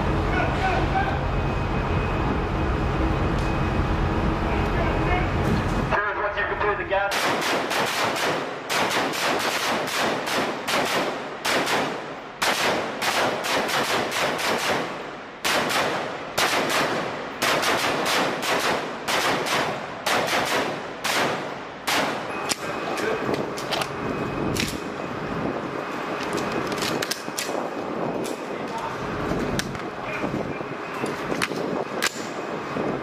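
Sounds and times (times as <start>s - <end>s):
automatic gunfire bursts: 7.1s - 22.2s.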